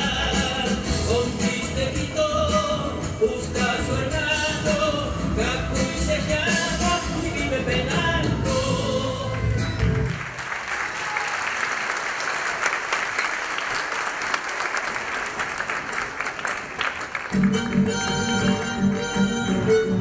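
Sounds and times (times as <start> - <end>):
audience applauding: 9.7 - 19.0
folk music with violin: 17.4 - 20.0.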